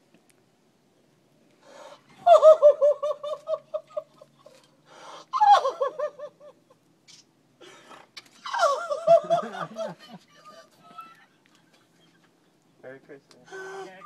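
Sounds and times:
woman laughing and crying: 2.2 - 4.7, 5.3 - 6.8, 8.4 - 12.5
breathy gasps: 13.4 - 14.0.

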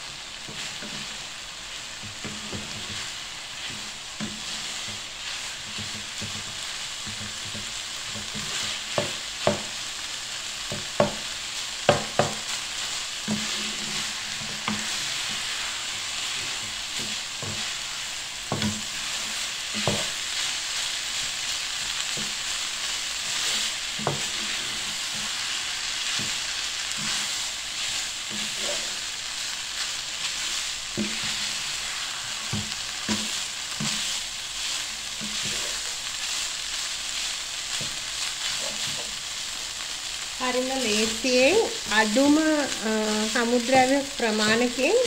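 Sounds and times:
food sizzling in a frying pan: 0.0 - 45.0
wooden spatula scraping a pan: 0.2 - 9.9, 10.6 - 39.9
spatula tapping against a pan: 5.7 - 9.8, 10.7 - 11.2, 11.9 - 12.4.

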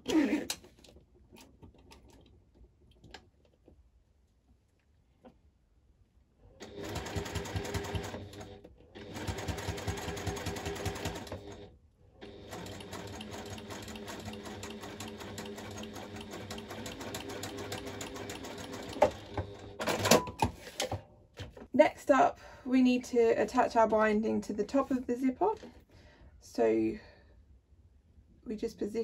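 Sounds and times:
sewing machine stitching: 6.6 - 20.3.

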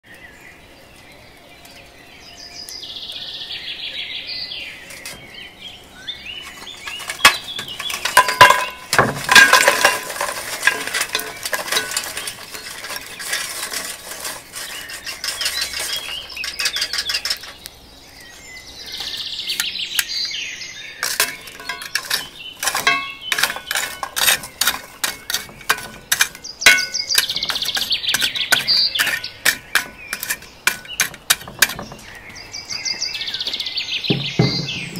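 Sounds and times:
birds singing: 0.0 - 34.9
charcoal clinking against metal: 6.4 - 17.7, 21.0 - 32.2.

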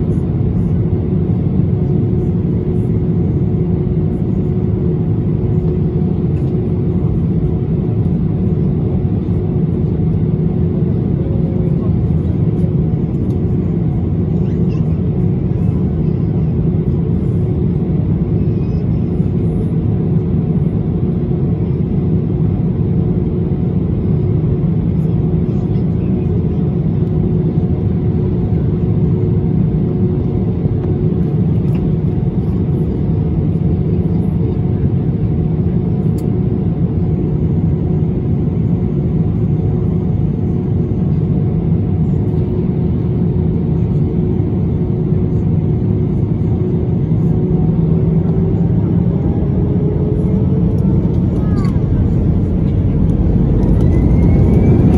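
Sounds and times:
jet engines idling: 44.8 - 54.9
steady hum: 47.1 - 54.9.

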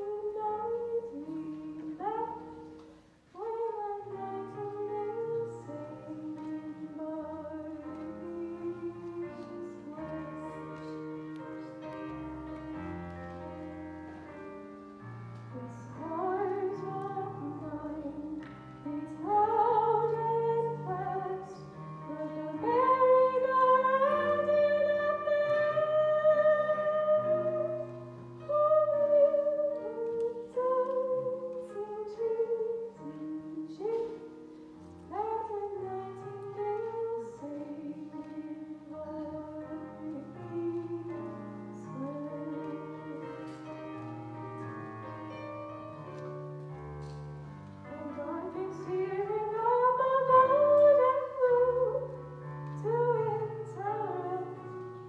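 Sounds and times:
piano accompaniment: 0.0 - 55.0
woman singing a slow ballad: 3.4 - 11.0, 19.0 - 34.3, 35.1 - 43.2, 48.0 - 54.8.

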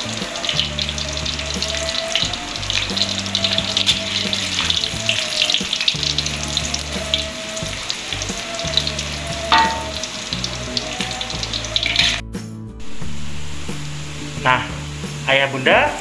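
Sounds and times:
garlic sizzling in hot oil: 0.0 - 12.2, 12.8 - 16.0
metal spatula clinking wok: 9.5 - 10.1.

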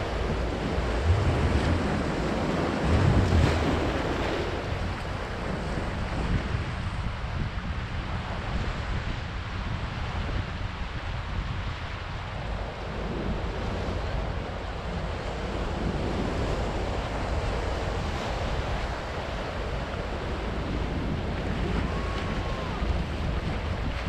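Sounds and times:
surf breaking over rocks: 0.0 - 6.5, 15.4 - 24.0
wind buffeting microphone: 0.0 - 24.0.

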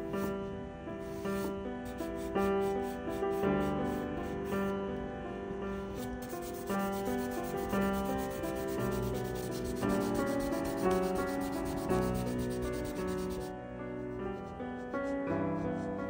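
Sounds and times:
charcoal scratching on paper: 5.9 - 13.5, 14.3 - 16.0.

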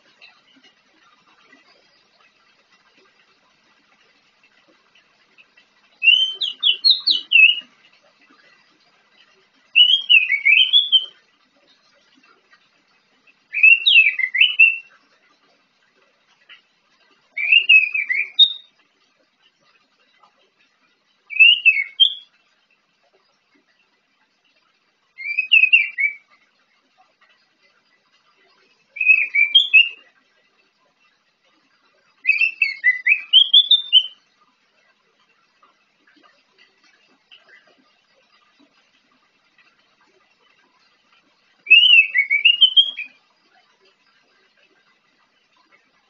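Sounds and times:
thrush singing whistled notes: 6.0 - 7.7, 9.7 - 11.2, 13.5 - 15.0, 17.3 - 18.8, 21.3 - 22.4, 25.1 - 26.4, 28.8 - 30.2, 32.2 - 34.3, 41.6 - 43.3.

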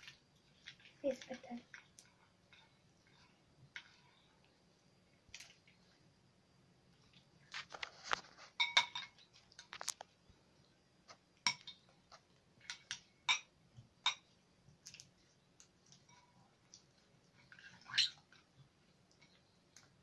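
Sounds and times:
metal spoon clinking on glass bowl: 8.6 - 9.2.

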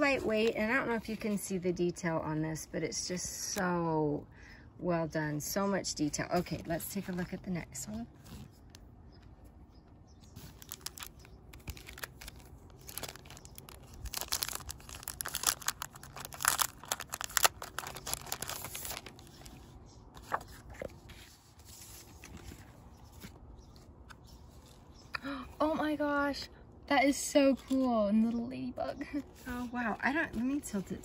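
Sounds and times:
plastic sleeve crinkling: 10.3 - 21.0.

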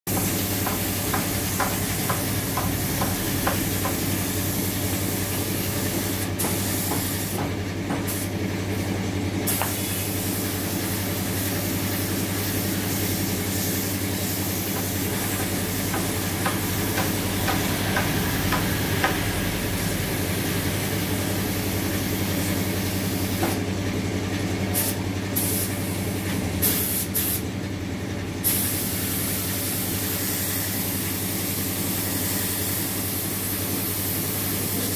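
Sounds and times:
spray gun hissing: 0.1 - 7.4, 8.0 - 8.3, 9.5 - 18.0, 26.6 - 27.4, 28.4 - 34.9.

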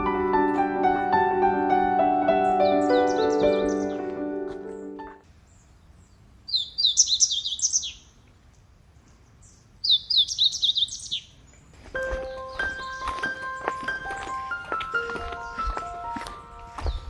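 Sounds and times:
piano music: 0.0 - 5.2, 12.0 - 17.0
songbird singing: 1.4 - 17.0.

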